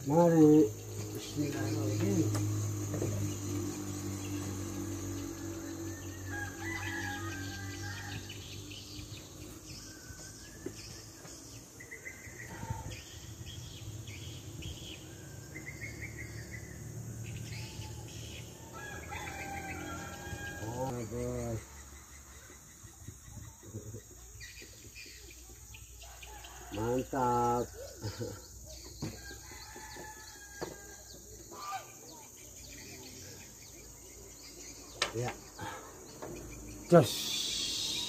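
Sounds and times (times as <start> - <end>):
birds chirping: 0.0 - 38.0
faint insect chorus: 0.0 - 38.0
brief pitched call: 37.0 - 38.0.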